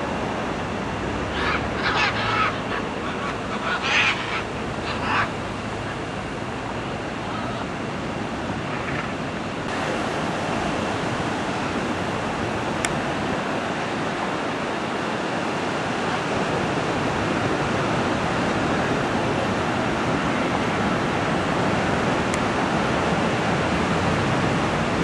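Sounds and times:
ocean surf washing: 0.0s - 25.0s.

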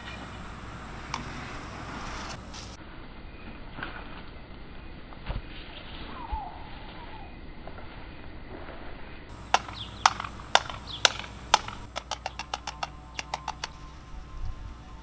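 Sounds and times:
sharp clicks: 9.4s - 13.9s.

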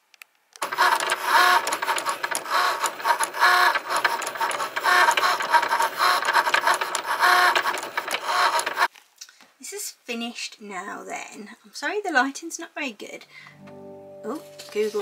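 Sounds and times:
cutting machine motors whirring: 0.6s - 8.9s.

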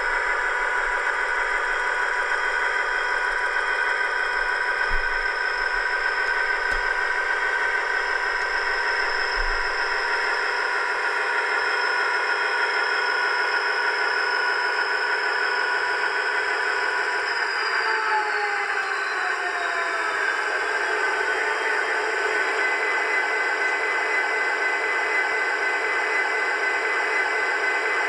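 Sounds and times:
diesel engine sound from small speaker: 14.6s - 28.0s.

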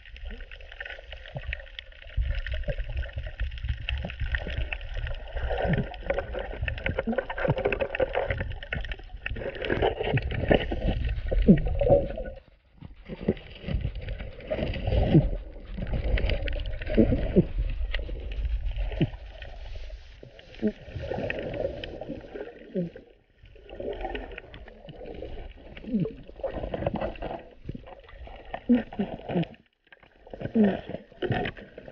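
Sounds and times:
underwater bubbling water: 0.0s - 31.9s
gurgling: 1.4s - 19.6s, 20.2s - 29.6s.

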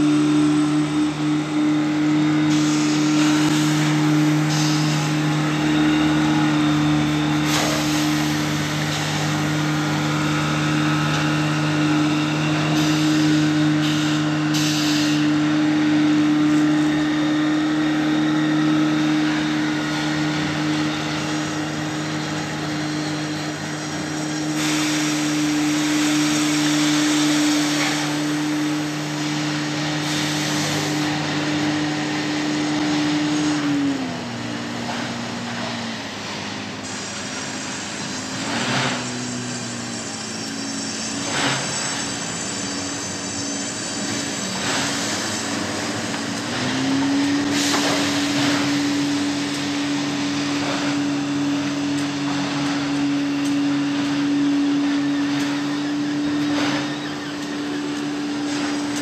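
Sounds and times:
boat engine running: 45.6s - 59.0s.

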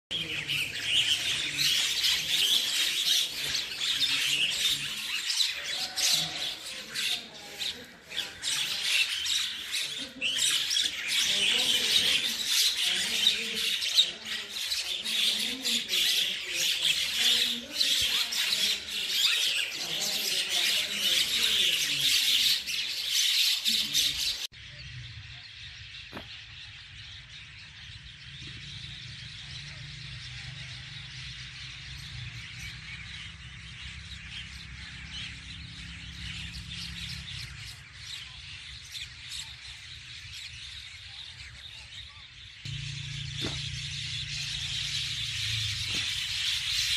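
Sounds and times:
birds chattering and squawking: 0.1s - 46.9s
low steady rumble: 42.7s - 45.9s.

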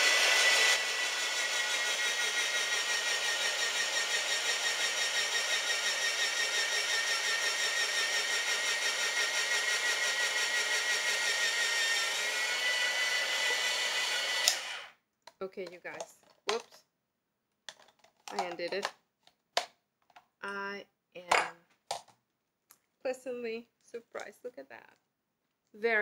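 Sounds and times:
electric shredder whining: 0.0s - 15.0s.

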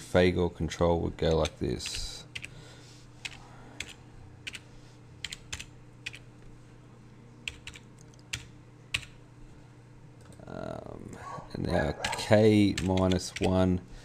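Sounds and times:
faint low hum: 0.0s - 14.0s
keyboard typing: 3.2s - 4.6s, 5.2s - 6.3s, 7.4s - 9.2s, 12.0s - 13.6s.

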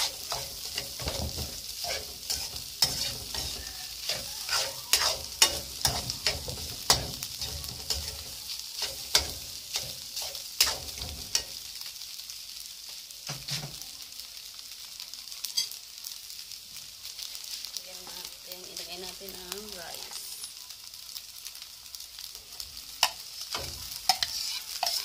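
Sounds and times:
metal spatula scraping a wok: 0.0s - 11.6s, 23.0s - 25.0s
food sizzling: 0.0s - 25.0s.

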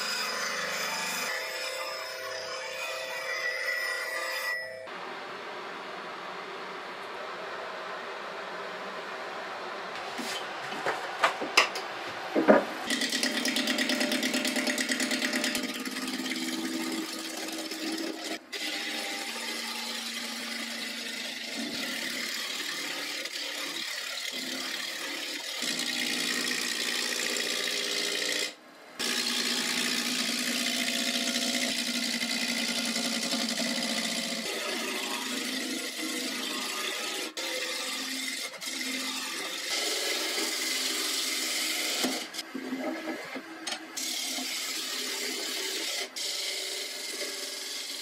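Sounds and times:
wood lathe running: 12.5s - 43.4s, 44.0s - 48.0s.

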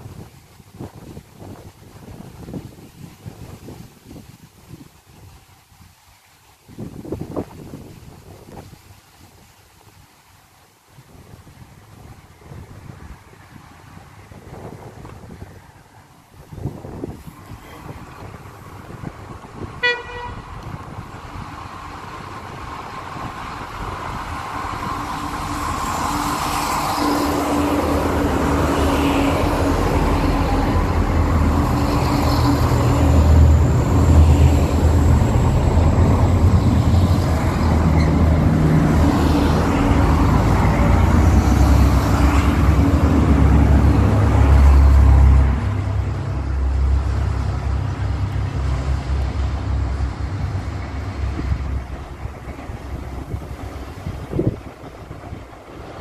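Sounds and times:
wheels rumbling on rails: 0.0s - 56.0s
diesel locomotive engine: 11.5s - 56.0s.

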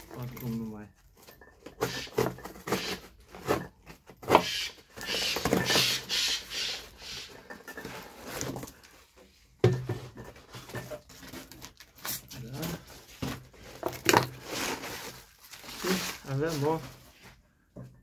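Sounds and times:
packaging rustling and tearing: 11.1s - 17.0s.

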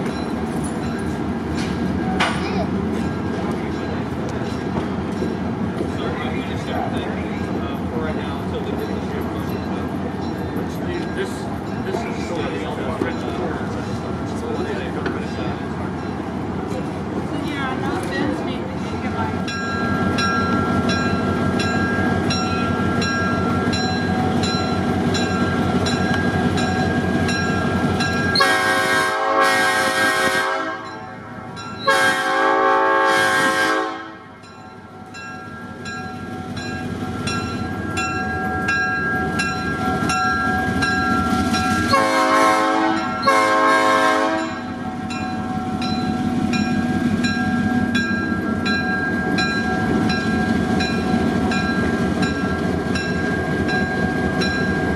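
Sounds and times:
diesel locomotive engine running: 0.0s - 54.9s
locomotive air horn blasts: 28.4s - 30.9s, 31.9s - 34.4s, 41.9s - 44.6s.

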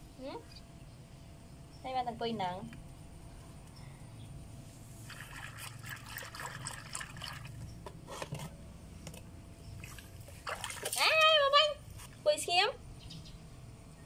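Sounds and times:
water sloshing in a plastic basin: 5.0s - 8.4s, 9.8s - 12.2s
small water splashes: 5.1s - 7.6s, 9.8s - 11.4s.

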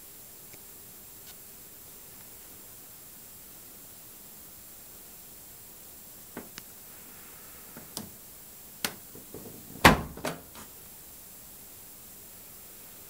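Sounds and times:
door unlatching clunk: 8.8s - 10.7s
washing machine door knocks: 8.9s - 10.6s.

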